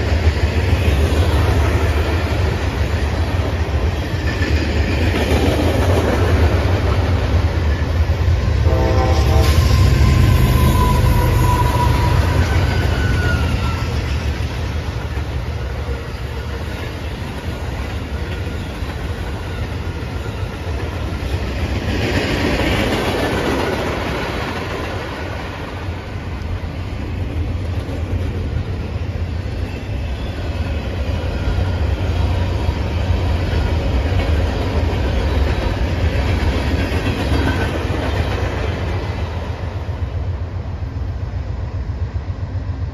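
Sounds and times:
freight train rumbling past: 0.0 - 42.9
train horn: 8.6 - 14.2.

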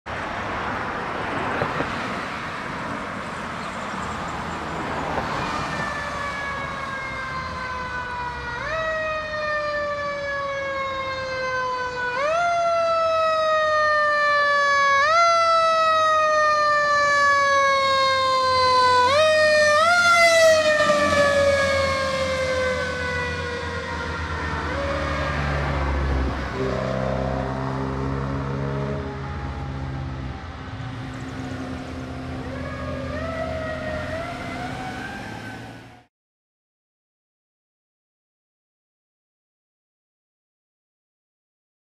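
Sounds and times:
passing traffic: 0.1 - 36.1
fire engine siren wailing: 4.8 - 36.1.

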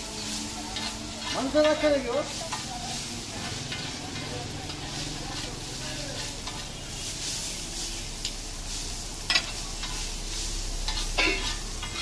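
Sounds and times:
metal spatula scraping: 0.0 - 8.1, 8.7 - 12.0
noodles sizzling on a griddle: 0.0 - 12.0
spatula clanking on pan: 9.3 - 10.0, 10.8 - 12.0.

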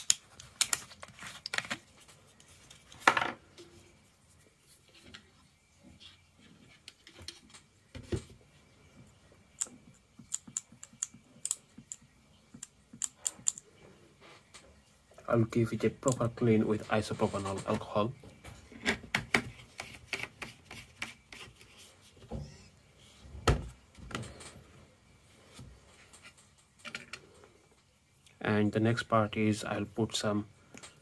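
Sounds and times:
plastic parts clicking: 0.0 - 1.8, 12.6 - 13.6.

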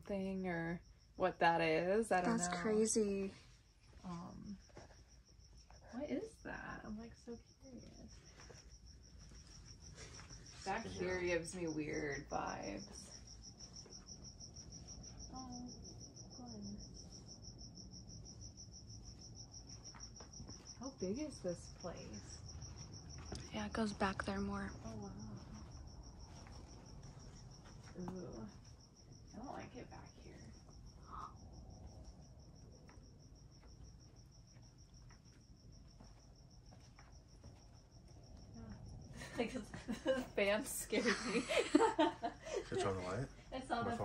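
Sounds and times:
cricket chirping: 0.0 - 44.0
low background hum: 0.0 - 44.0
voices murmuring: 1.6 - 3.3, 10.6 - 13.1, 42.5 - 44.0.

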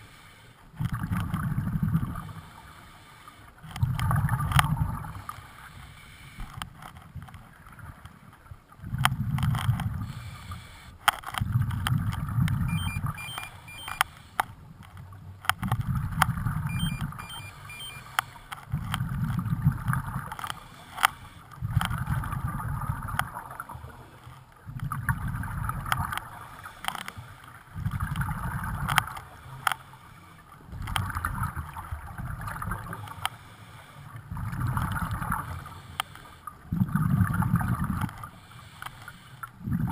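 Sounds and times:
regulator inhale hiss: 10.0 - 11.0, 33.3 - 34.1, 38.4 - 39.5
light ticks: 10.5 - 15.9, 28.8 - 29.8.

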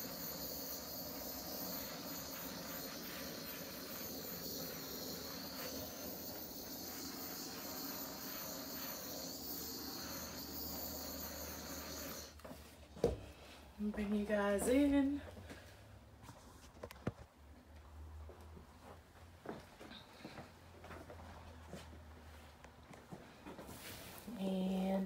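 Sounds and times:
torch flame hissing: 0.0 - 12.4.

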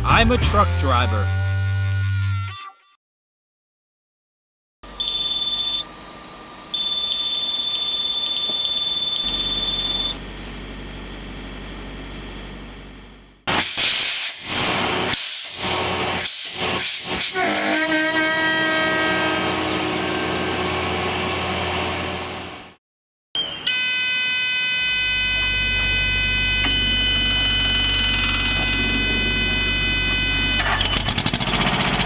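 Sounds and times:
high-pitched whine: 4.9 - 10.3, 24.7 - 31.0
truck diesel engine running: 8.5 - 13.5, 25.4 - 32.0
loud hissing blasts: 13.5 - 17.4
low hum: 25.3 - 30.6.

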